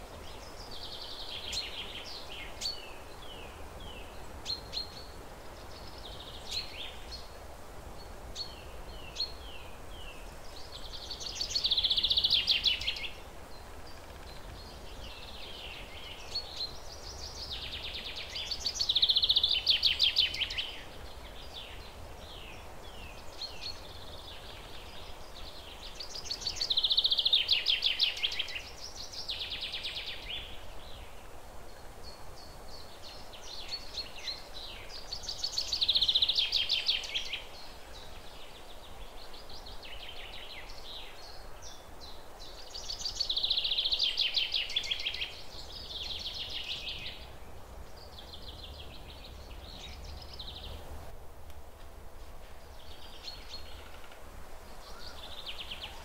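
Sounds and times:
low background noise: 0.0s - 56.0s
songbird singing rapid notes: 8.0s - 51.1s
faint bird chirps: 52.6s - 56.0s.

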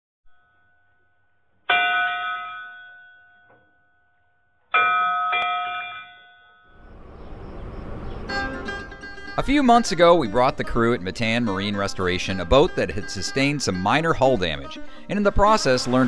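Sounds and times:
bell-like chime ringing: 4.8s - 6.8s.

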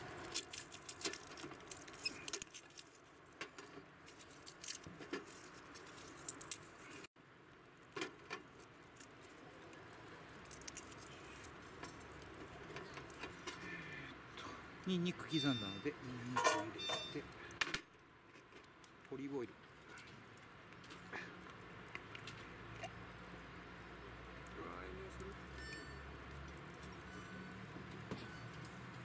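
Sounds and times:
garlic skins rustling: 0.0s - 7.1s, 8.4s - 13.7s.

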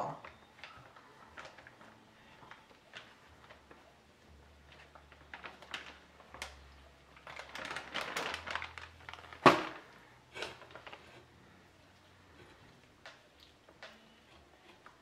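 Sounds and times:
plastic bag crinkling: 0.2s - 11.6s.

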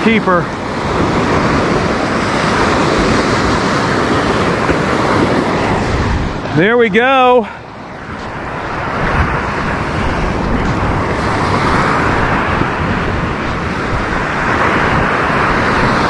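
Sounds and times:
surf breaking on beach: 0.0s - 16.0s
wind rumbling on microphone: 0.0s - 16.0s.

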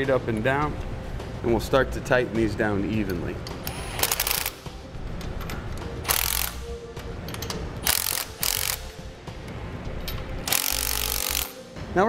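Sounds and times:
impact wrench hammering: 6.0s - 6.6s, 7.3s - 9.1s, 10.1s - 11.6s.

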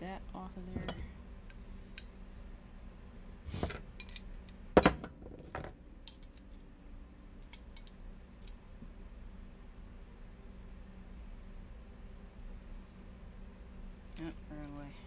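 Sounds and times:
metal tools clinking and rattling: 4.0s - 6.6s.

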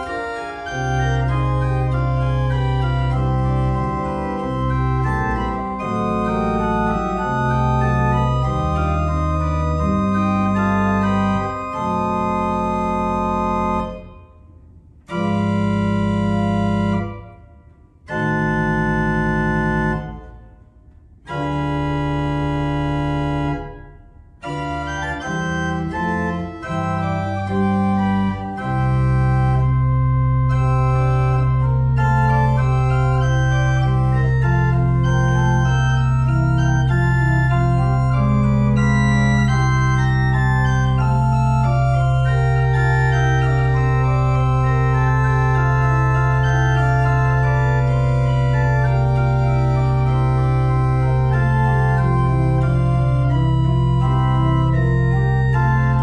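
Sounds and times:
pipe organ chords: 0.0s - 56.0s
low organ pedal note: 15.0s - 17.5s, 21.3s - 56.0s.

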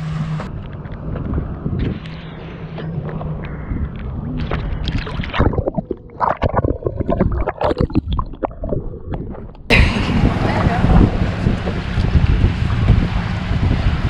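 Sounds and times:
water sloshing and splashing: 0.6s - 9.7s.

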